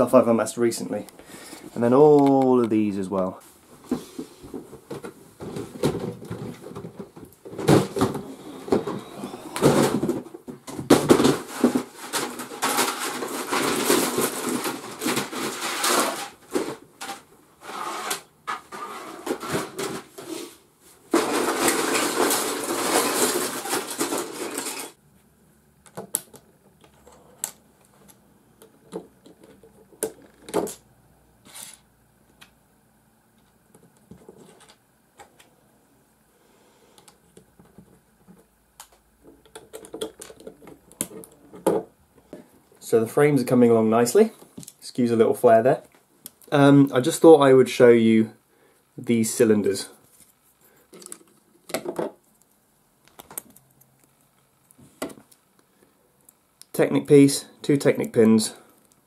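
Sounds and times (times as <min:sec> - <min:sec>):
plastic pieces rattling in a box: 0:11.0 - 0:18.1, 0:21.1 - 0:25.0.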